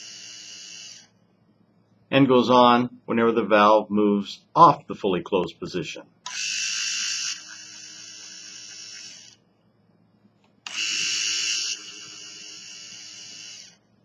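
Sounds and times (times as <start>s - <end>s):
valve actuator motor whirring: 0.0s - 1.2s, 6.2s - 9.4s, 10.6s - 13.9s.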